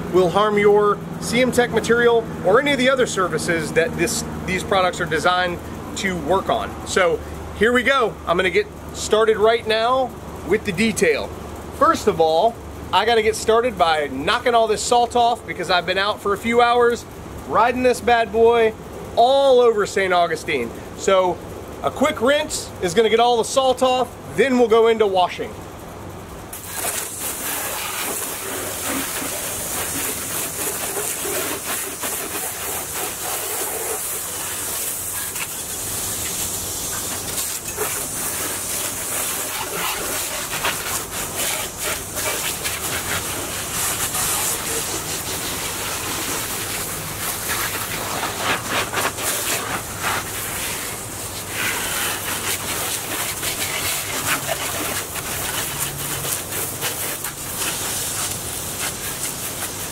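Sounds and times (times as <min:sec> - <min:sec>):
hose nozzle spraying water: 0:26.5 - 0:59.9.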